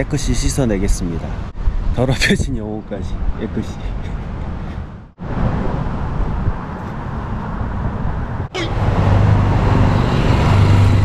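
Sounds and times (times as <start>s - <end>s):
cars passing on road: 0.0s - 2.0s, 2.8s - 11.0s
vehicle engine humming: 5.9s - 11.0s.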